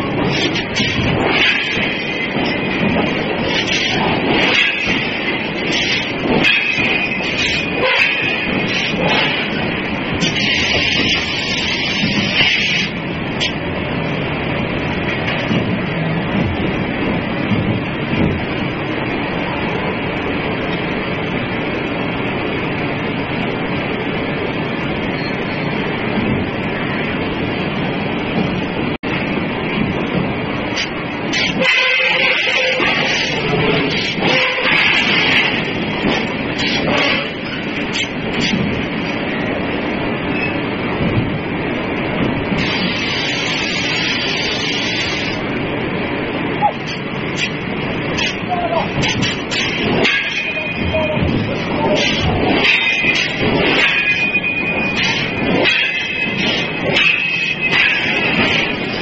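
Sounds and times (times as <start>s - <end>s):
heavy machinery rumbling and clattering: 47.0s - 59.0s.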